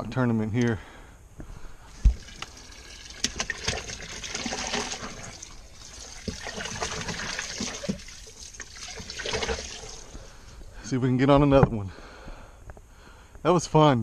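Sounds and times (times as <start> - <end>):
water splashing and trickling: 1.8 - 10.6.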